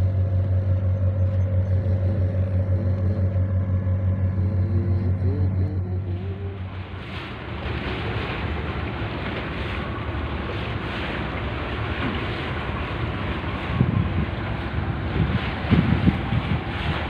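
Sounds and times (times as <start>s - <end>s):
ship engine hum: 0.0s - 17.0s
wind on microphone: 0.0s - 17.0s.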